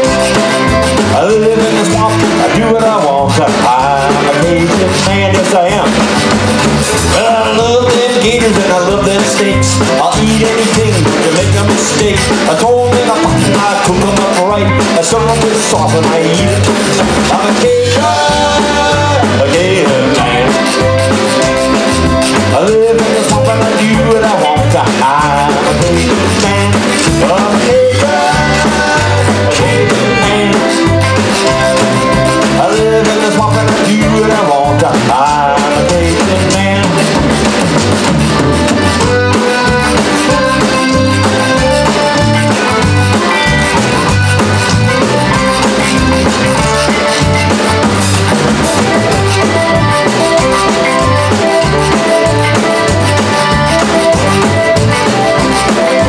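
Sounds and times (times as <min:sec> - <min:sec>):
accordion: 0:00.0 - 0:56.0
drum kit beat: 0:00.0 - 0:56.0
electric bass: 0:00.0 - 0:56.0
live band playing upbeat song: 0:00.0 - 0:56.0
voices singing along: 0:07.0 - 0:37.2.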